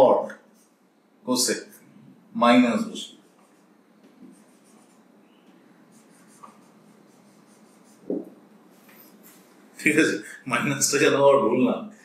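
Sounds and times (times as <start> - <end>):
marker writing on whiteboard: 3.1 - 5.1, 5.9 - 9.5.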